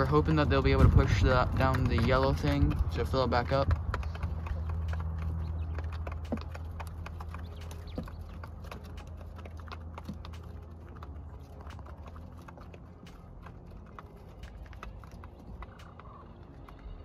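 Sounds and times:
low steady hum: 0.0 - 17.0
quail tapping on wire floor: 0.8 - 11.0.

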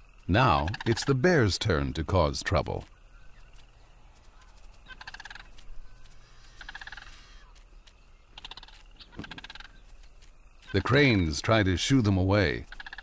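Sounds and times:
cranes rattling calls: 2.9 - 7.6, 8.2 - 11.2, 12.6 - 13.0.

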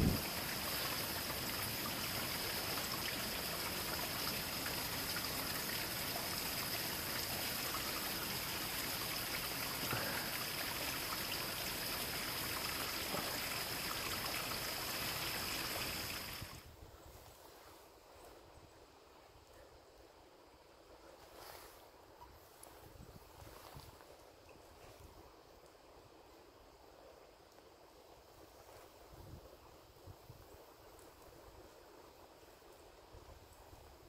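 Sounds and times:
flowing stream rushing: 0.0 - 16.6.

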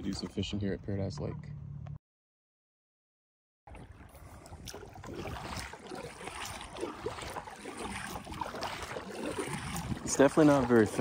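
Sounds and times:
kayak paddle splashing in water: 3.7 - 11.0
water lapping: 3.7 - 11.0.

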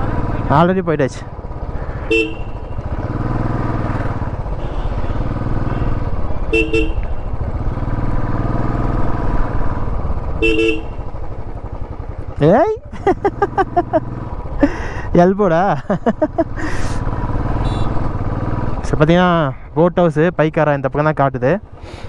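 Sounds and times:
motorcycle engine running: 0.0 - 22.0
short horn beeps: 2.1 - 2.9, 4.6 - 7.4, 10.4 - 11.0, 17.6 - 18.0.

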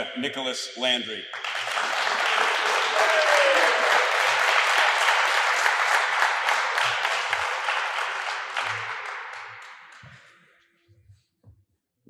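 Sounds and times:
audience applause: 1.4 - 10.0.

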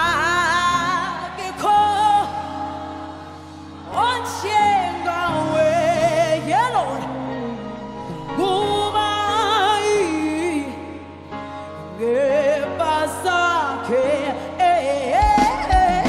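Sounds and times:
high voice singing with vibrato: 11.8 - 16.0.

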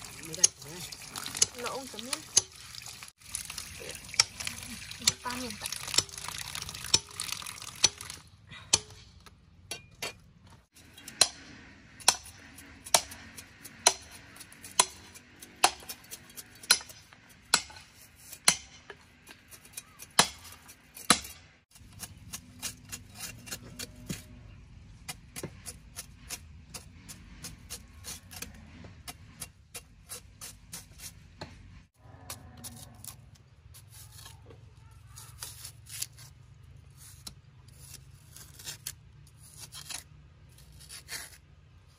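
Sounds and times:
light cuts and scraping: 10.0 - 41.9
cleaver chopping: 10.9 - 24.3.

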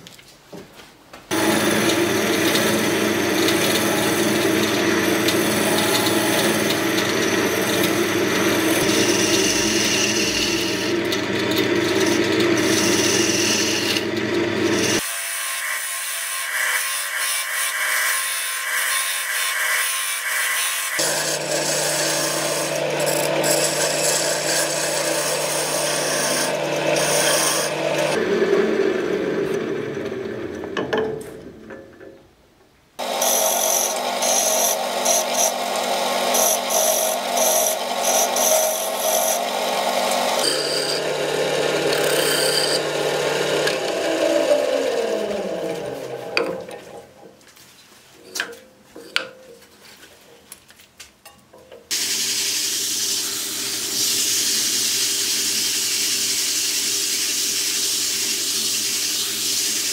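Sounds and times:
lathe spinning down whine: 1.3 - 15.0
wood lathe running: 1.3 - 30.9, 33.0 - 47.2, 51.9 - 59.9.

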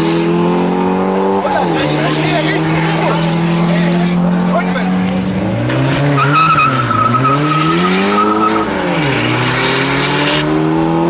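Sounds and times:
car engine revving hard: 0.0 - 11.0
tyre squeal: 6.1 - 9.4.

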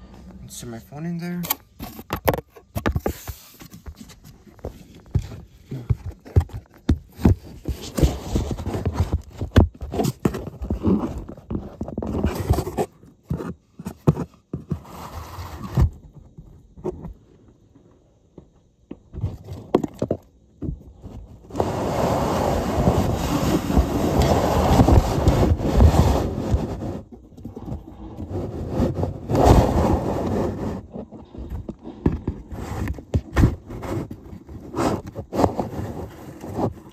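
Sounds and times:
knocks and scrapes of phone: 22.9 - 36.9.

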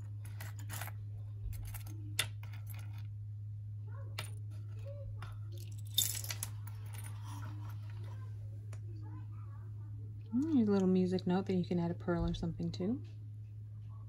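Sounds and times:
jewelry clicking and rattling: 0.0 - 3.1, 4.2 - 8.1
steady low hum: 0.0 - 14.0.

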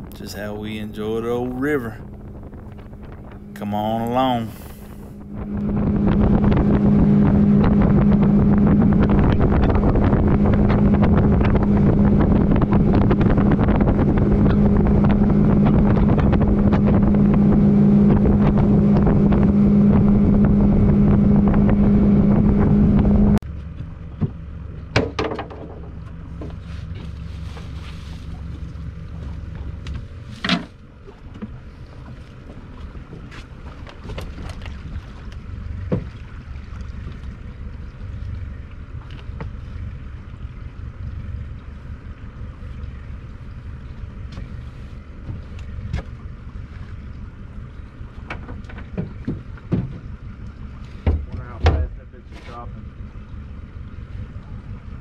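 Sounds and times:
wind buffeting microphone: 0.0 - 23.4
outboard motor running: 0.0 - 55.0
sharp knocks: 24.2 - 25.9.

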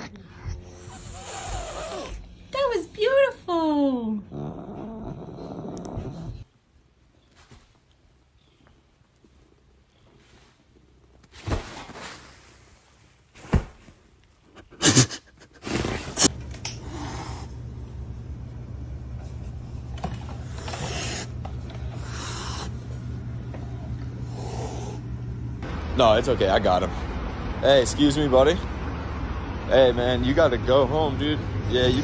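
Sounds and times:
kitten hissing: 0.0 - 2.2, 14.7 - 17.6, 20.5 - 21.3, 22.0 - 22.8, 24.2 - 25.0
steady low hum: 0.0 - 7.2, 16.0 - 32.0.

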